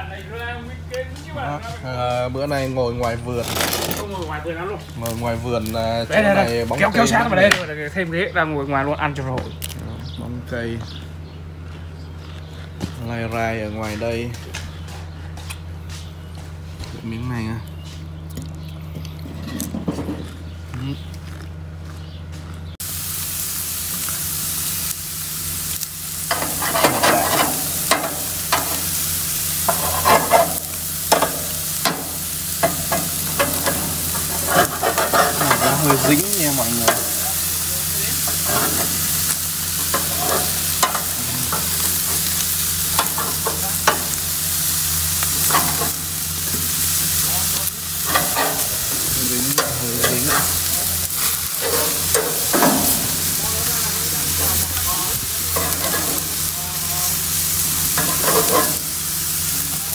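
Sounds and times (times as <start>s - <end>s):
meat sizzling on a grill: 0.0s - 10.6s, 22.8s - 59.9s.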